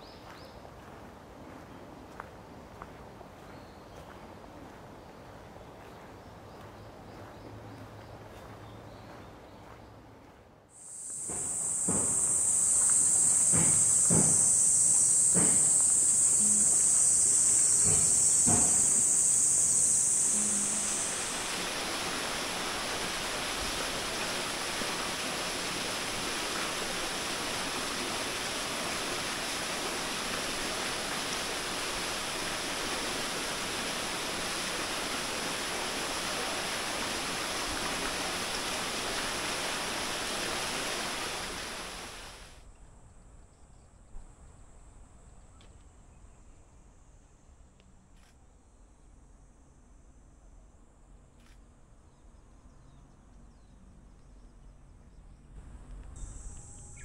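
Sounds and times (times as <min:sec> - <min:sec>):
high insect shrilling: 0:10.8 - 0:25.2
stream water rushing: 0:10.9 - 0:42.6.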